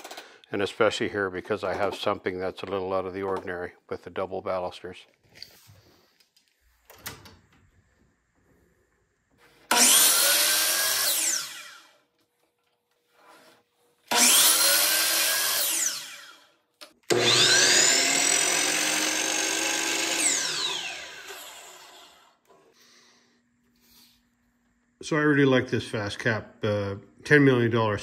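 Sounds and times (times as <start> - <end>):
miter saw cutting wood: 9.7 - 12.0, 14.1 - 16.5, 17.1 - 22.4.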